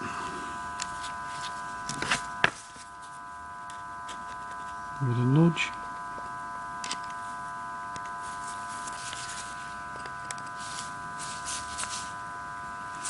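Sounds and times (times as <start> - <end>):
high-toned electrical hum: 0.0 - 13.0
small parts clicking and scraping: 6.8 - 7.2.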